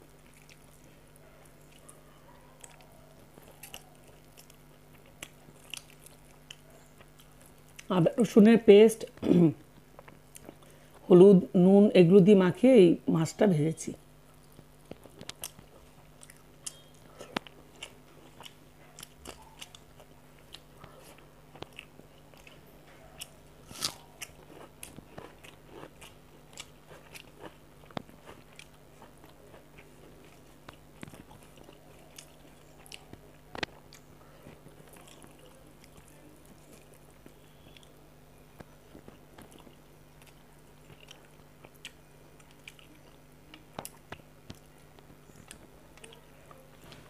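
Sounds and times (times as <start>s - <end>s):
faint low hum: 0.0s - 47.0s
chewing and mouth clicks: 0.1s - 7.9s, 14.4s - 38.0s, 38.6s - 47.0s
small crunches: 23.2s - 38.0s.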